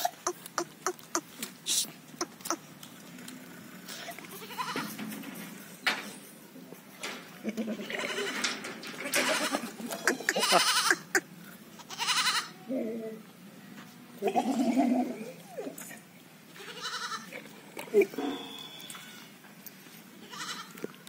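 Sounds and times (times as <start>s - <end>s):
goats bleating: 3.9s - 5.0s, 7.4s - 11.2s, 11.8s - 12.7s, 16.5s - 17.5s, 20.2s - 20.8s.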